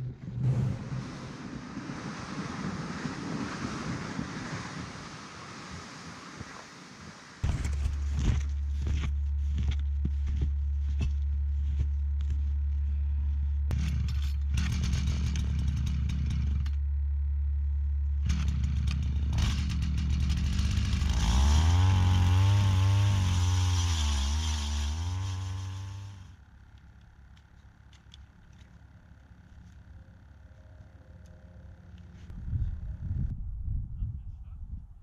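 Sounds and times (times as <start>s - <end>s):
ice auger engine running: 7.4s - 16.8s, 18.1s - 26.5s.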